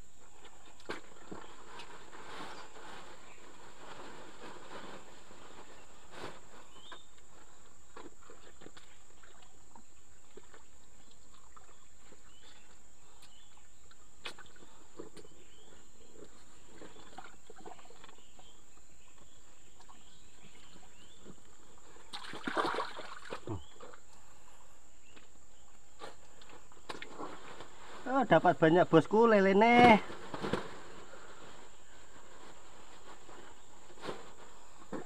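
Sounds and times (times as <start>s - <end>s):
faint rustles: 0.1s - 22.1s, 23.4s - 35.0s
splashing in mud and water: 22.0s - 24.0s.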